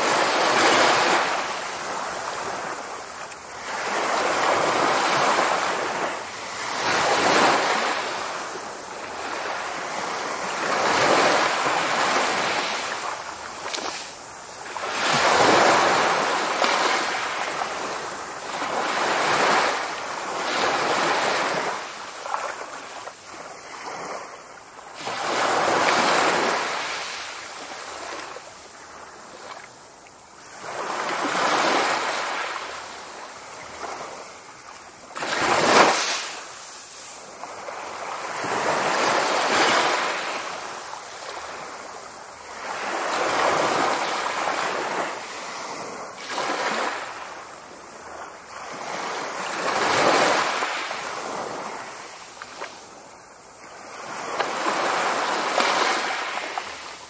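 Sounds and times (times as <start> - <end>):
small waves washing on sand: 0.0 - 57.0.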